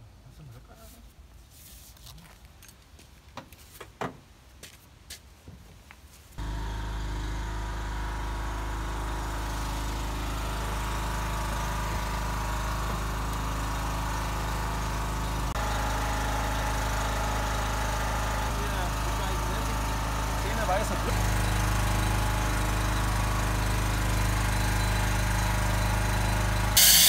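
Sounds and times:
engine hum with hiss: 6.4 - 27.0.

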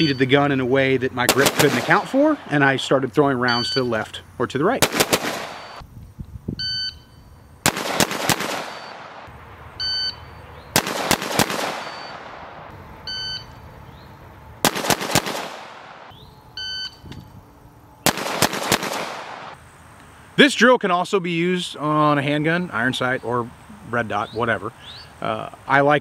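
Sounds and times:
rifle shots: 1.3 - 2.4, 4.8 - 5.8, 7.6 - 9.4, 10.7 - 12.8, 14.6 - 16.1, 18.0 - 19.6
shot timer beeping: 5.5 - 5.8, 11.8 - 12.2.

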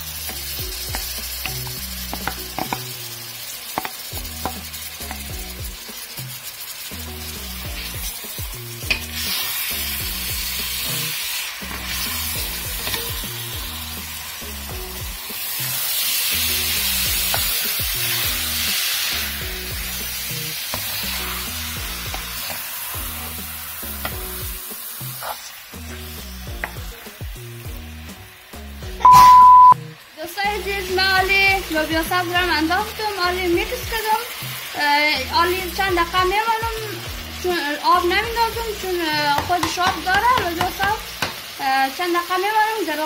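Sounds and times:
green beans sizzling in oil: 0.0 - 43.0
music: 0.0 - 43.0
wooden spoon tapping pot: 0.9 - 2.8, 39.4 - 41.4.

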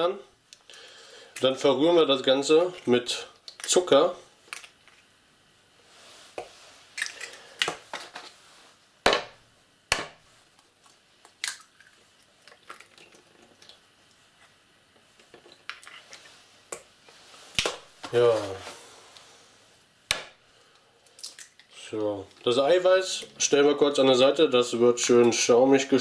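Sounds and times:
eggshells cracking: 7.0 - 7.8, 10.8 - 13.8, 21.0 - 22.5.

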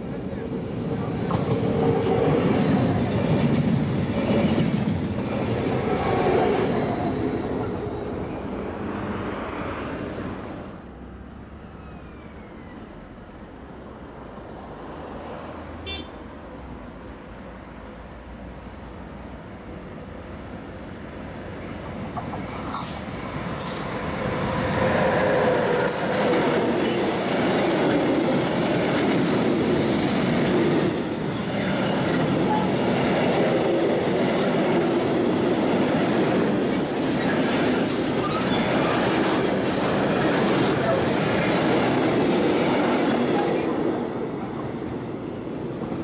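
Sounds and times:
freight train wheels rumbling: 0.0 - 10.8, 21.4 - 46.0
high wheel squeals: 37.0 - 38.9.

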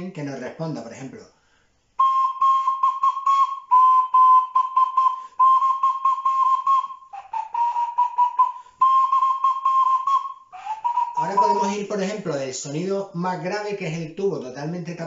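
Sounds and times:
homemade flute whistling: 2.0 - 12.3.

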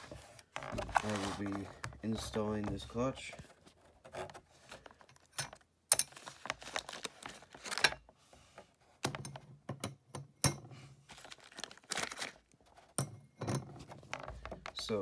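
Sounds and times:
plastic crinkling: 0.0 - 2.3, 3.2 - 8.0, 11.1 - 12.9.

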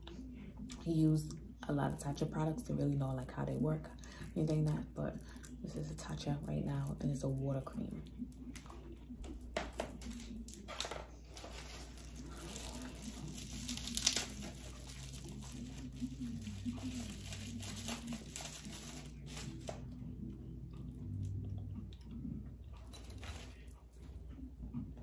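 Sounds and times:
packaging crinkling and tearing: 9.8 - 19.9.

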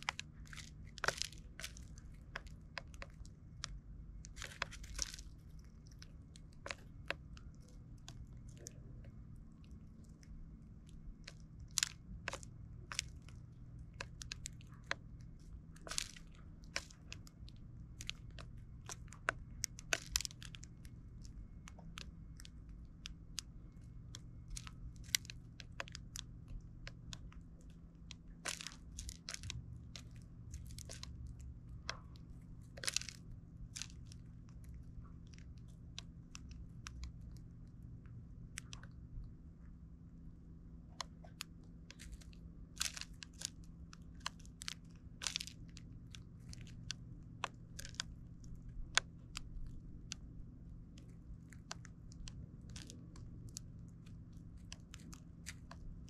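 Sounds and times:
low background hum: 0.0 - 56.0
seeds cracking: 0.0 - 56.0.

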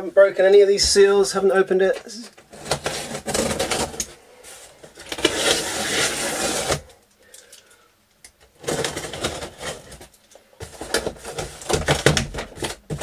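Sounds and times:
packing tape ripping from cardboard: 2.4 - 4.2, 4.8 - 7.0, 8.5 - 13.0.

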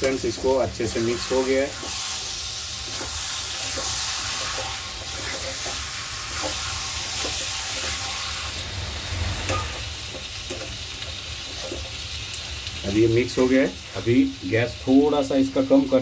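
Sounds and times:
spatula scraping a pan: 0.0 - 12.0
meat sizzling in a pan: 0.0 - 16.0.

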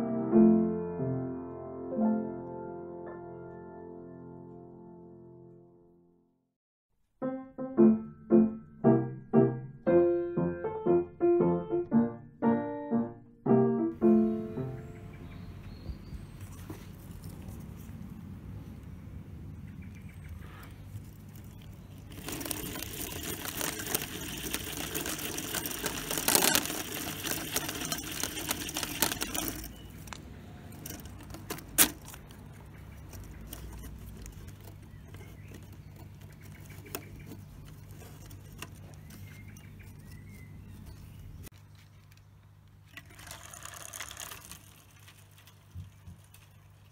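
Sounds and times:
faint handling ticks: 19.9 - 42.3
hand winder whirring clicks: 22.1 - 32.4.

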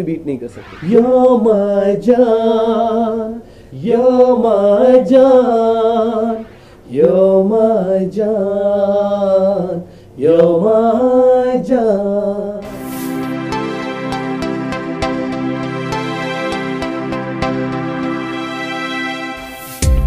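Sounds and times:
man singing unaccompanied: 0.7 - 12.6.

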